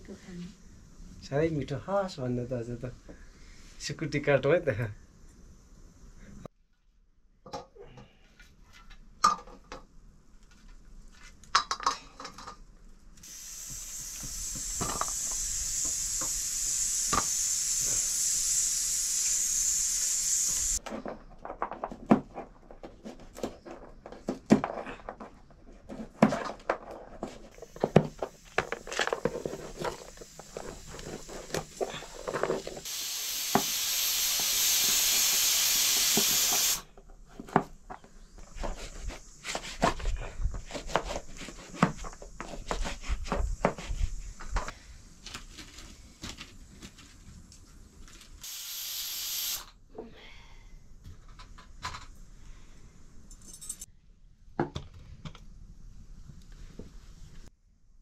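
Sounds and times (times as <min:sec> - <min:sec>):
loud steady hiss: 0:13.2 - 0:20.8, 0:27.5 - 0:37.0, 0:47.4 - 0:49.8.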